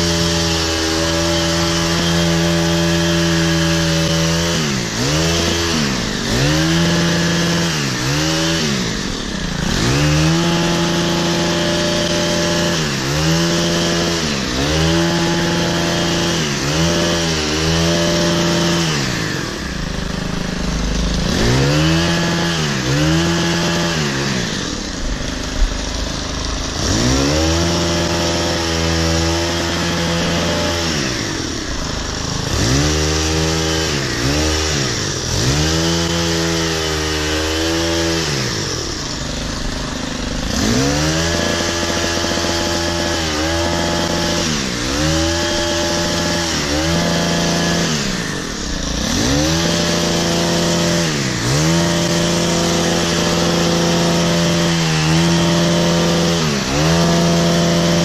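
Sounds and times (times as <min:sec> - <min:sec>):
hedge trimmer engine revving: 0:00.0 - 0:58.0.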